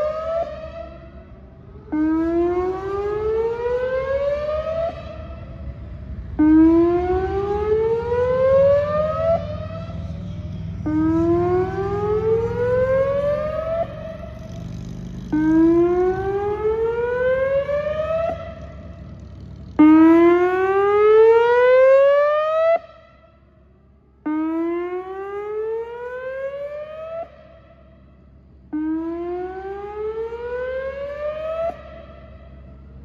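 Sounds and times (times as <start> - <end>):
electronic warning siren wailing: 0.0 - 23.4, 24.2 - 28.0, 28.7 - 33.0.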